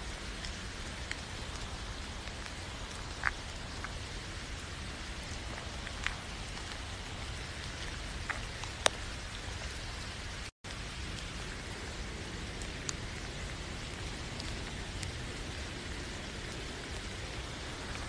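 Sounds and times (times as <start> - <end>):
steady rain falling: 0.0 - 18.0.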